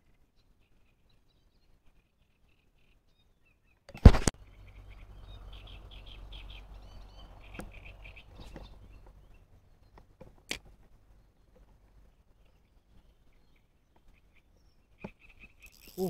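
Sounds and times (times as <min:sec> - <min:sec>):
small birds chirping: 0:00.0 - 0:16.0
fishing reel clicks: 0:15.7 - 0:16.0.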